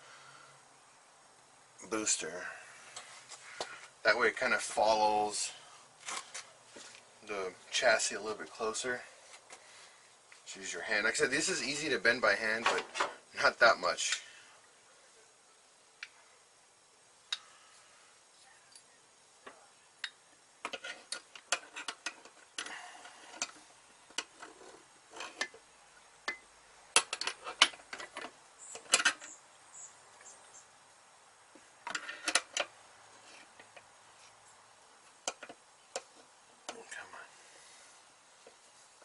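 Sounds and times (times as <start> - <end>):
metal tubing clicking and tapping: 26.2 - 26.4.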